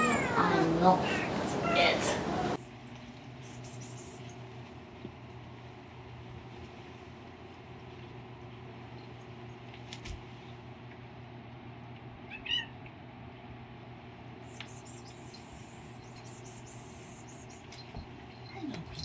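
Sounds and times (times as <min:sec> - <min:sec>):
cat meowing: 0:00.0 - 0:00.7, 0:12.3 - 0:12.8
steady low hum: 0:00.0 - 0:19.0.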